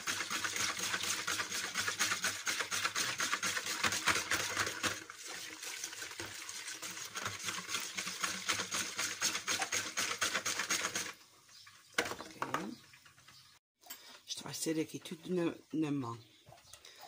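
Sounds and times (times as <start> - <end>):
wire whisk beating liquid in a bowl: 0.0 - 11.2.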